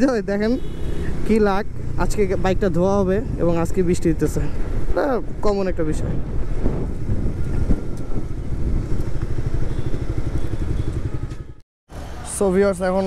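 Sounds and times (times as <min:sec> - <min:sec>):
wind noise on microphone: 0:05.3 - 0:11.6
motorcycle engine running: 0:07.1 - 0:11.6.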